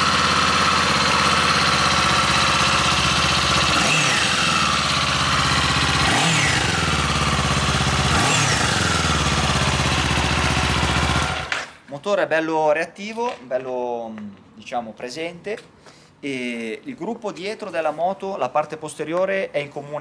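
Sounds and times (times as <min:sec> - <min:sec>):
motorcycle engine idling: 0:00.0 - 0:11.5.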